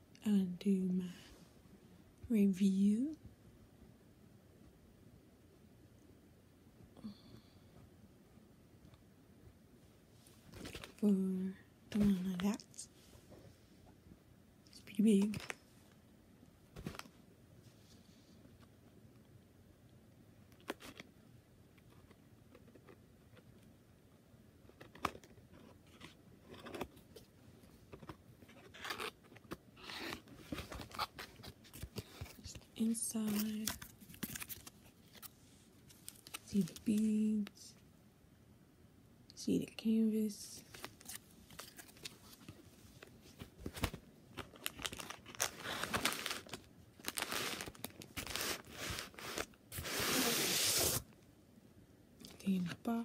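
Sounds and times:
plastic packaging crinkling: 33.2 - 35.3, 43.7 - 49.5.

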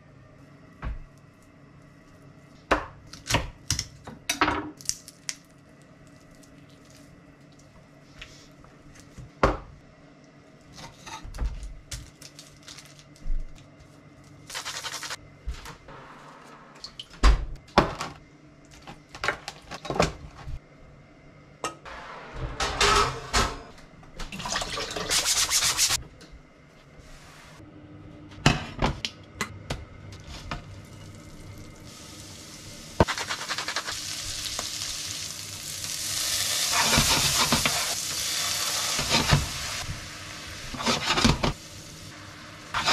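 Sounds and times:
greens sizzling in frying pan: 31.0 - 42.9.

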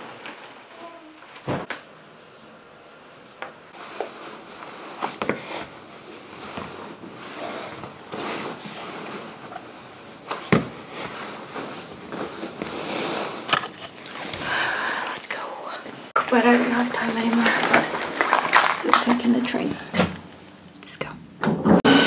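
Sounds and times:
clothing rustling: 3.7 - 15.2.

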